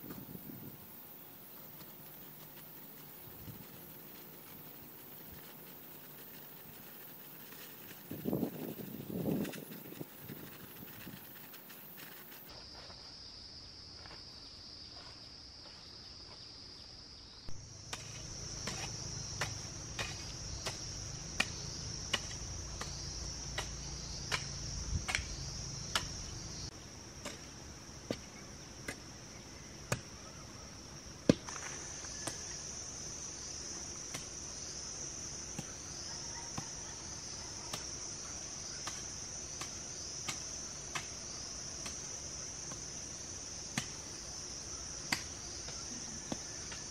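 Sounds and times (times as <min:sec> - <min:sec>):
insect chirring: 0:00.0 - 0:12.5, 0:16.0 - 0:46.9
hoe striking soil: 0:17.8 - 0:26.3, 0:27.2 - 0:29.1, 0:31.3 - 0:32.5, 0:38.7 - 0:43.0, 0:43.7 - 0:44.2, 0:45.1 - 0:46.9.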